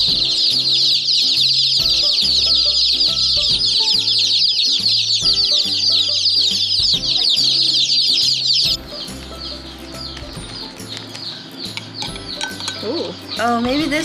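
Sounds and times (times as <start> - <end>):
baby chicks peeping: 0.0 - 14.0.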